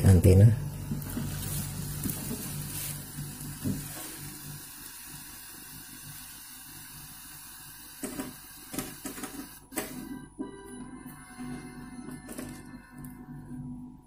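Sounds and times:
tv static hiss: 0.0 - 10.3.

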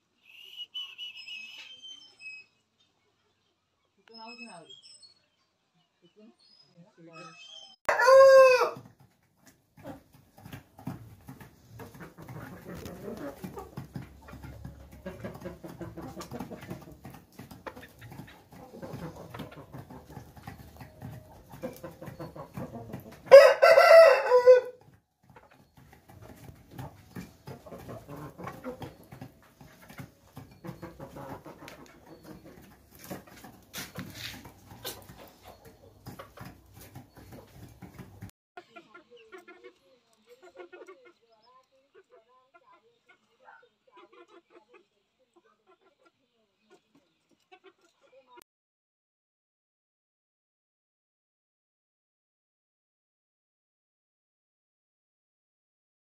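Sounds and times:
rooster crowing: 7.9 - 8.8, 23.3 - 24.8
chickens pecking at feed bowl: 8.0 - 48.4
chickens clucking softly: 8.8 - 24.2, 24.8 - 48.4.

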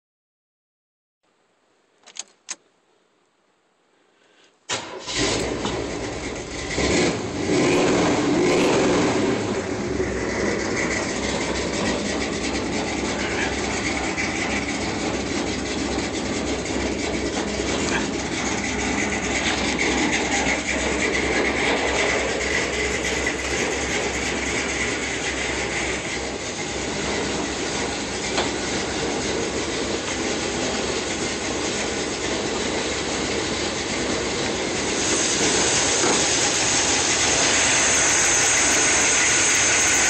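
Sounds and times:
ignition key clicks: 2.0 - 2.6
car engine starting and idling: 4.7 - 40.0.

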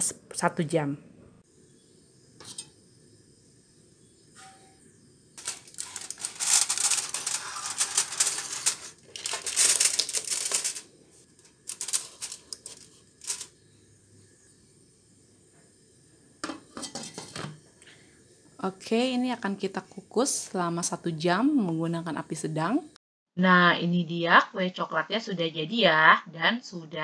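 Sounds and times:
foil crinkling: 5.4 - 13.5.

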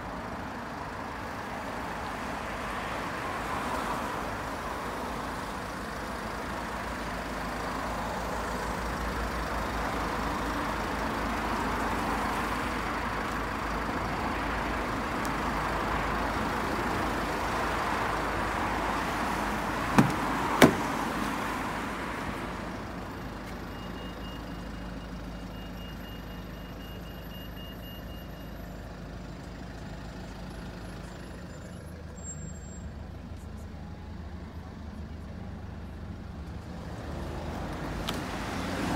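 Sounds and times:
road traffic hiss and rumble: 0.0 - 38.9
car door clicks: 19.9 - 21.0.

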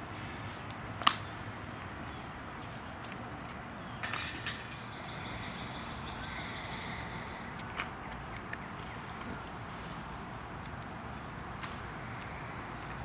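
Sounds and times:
disc striking metal chains: 4.0 - 5.0
outdoor hiss: 8.8 - 13.0.

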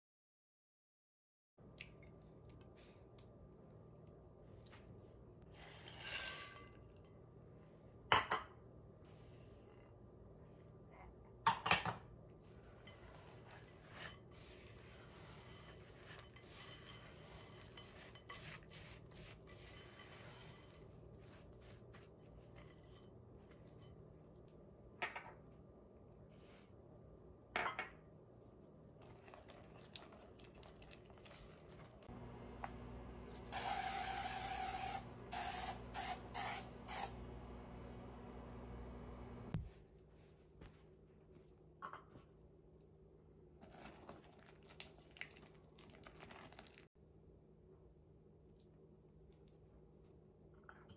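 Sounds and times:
spatula stirring in glass bowl: 12.5 - 24.0
aerosol spray hissing: 33.5 - 37.2.

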